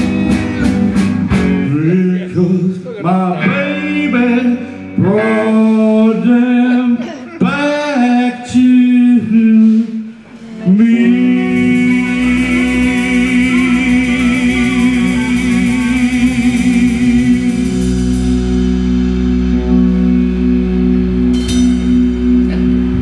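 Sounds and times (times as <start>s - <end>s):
electric guitar with vibrato: 0.0s - 8.6s, 9.7s - 23.0s
steady bass: 0.0s - 23.0s
cymbals rolling: 10.8s - 23.0s
cymbal crash: 11.4s - 22.8s.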